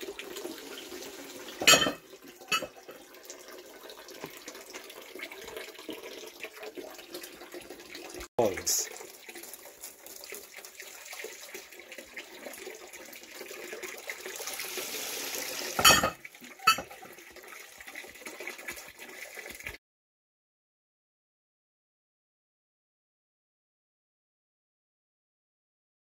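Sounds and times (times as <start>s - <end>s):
water pouring into a trough: 0.0s - 19.8s.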